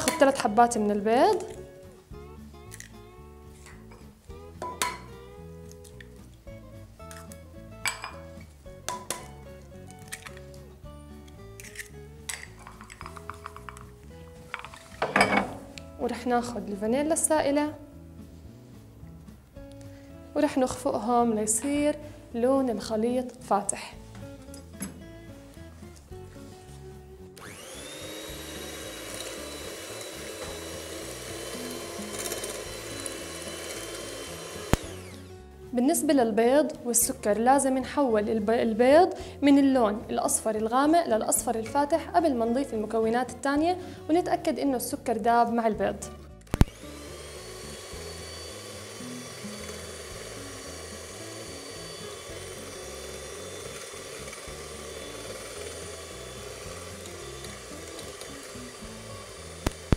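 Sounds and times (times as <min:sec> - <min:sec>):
electric hand mixer whine: 0:27.4 - 0:35.4, 0:46.6 - 0:59.9.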